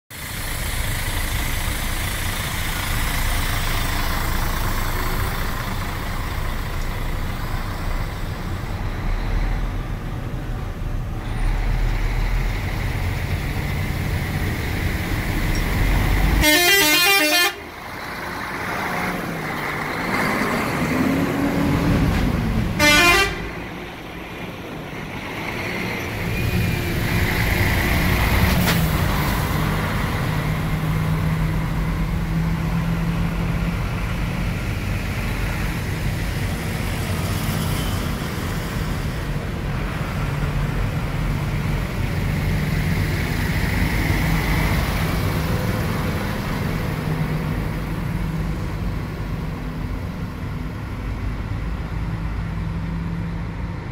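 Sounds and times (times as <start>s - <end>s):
diesel truck engine rumbling: 0.1s - 53.9s
truck horn blasts: 16.4s - 17.8s, 22.8s - 23.7s.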